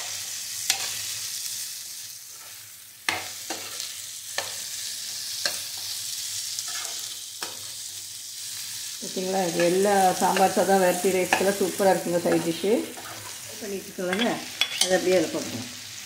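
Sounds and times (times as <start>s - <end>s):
food sizzling in frying pan: 0.0s - 16.0s
spatula scraping and knocking pan: 9.6s - 15.0s.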